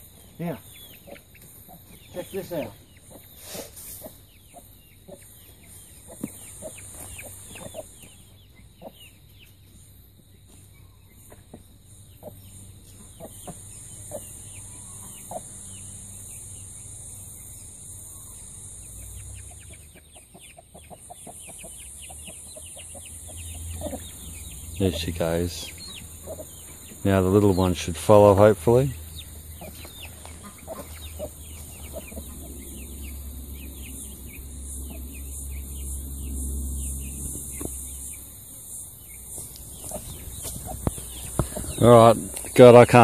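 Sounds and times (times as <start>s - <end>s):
hen clucking: 0.0s - 9.8s, 10.8s - 43.0s
chicks peeping: 0.0s - 43.0s.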